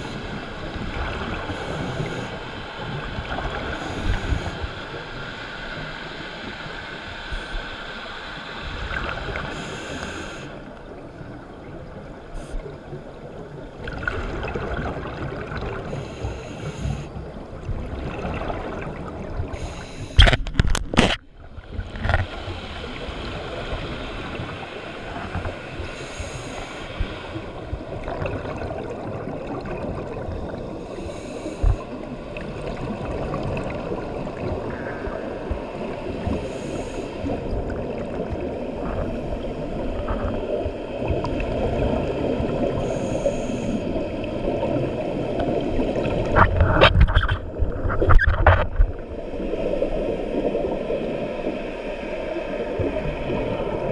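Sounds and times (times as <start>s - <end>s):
muffled underwater bubbles gurgling: 0.0s - 7.7s
hissing exhale bursts: 25.9s - 27.2s, 42.8s - 43.9s.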